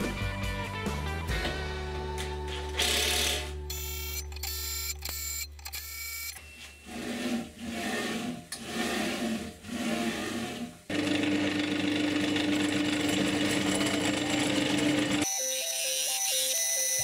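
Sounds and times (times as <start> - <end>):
drill press hole saw cutting metal: 6.8 - 16.0.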